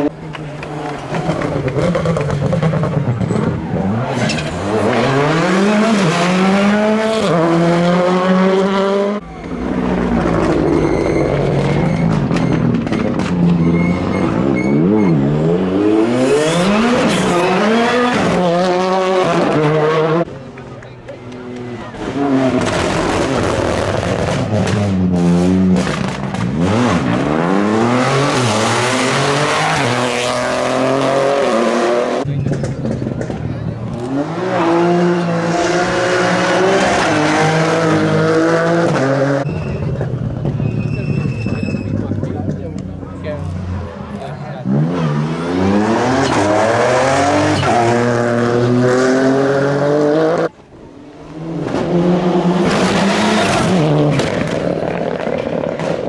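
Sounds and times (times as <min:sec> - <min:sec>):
car engine accelerating hard: 0:00.0 - 0:20.3
rally car engine revving hard: 0:00.7 - 0:20.3, 0:22.0 - 0:39.6, 0:44.6 - 0:50.5, 0:51.2 - 0:56.0.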